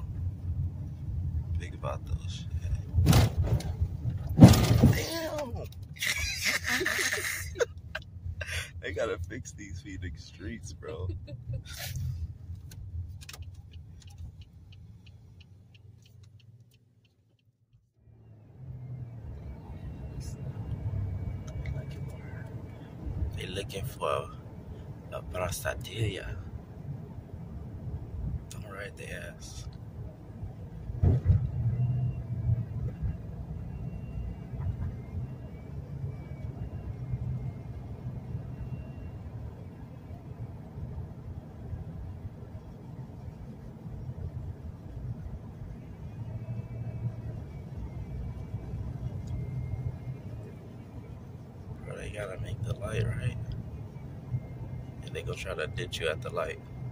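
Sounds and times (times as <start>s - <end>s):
car interior road rumble: 0.0s - 56.9s
sharp thump: 3.0s - 5.1s, 31.0s - 31.5s.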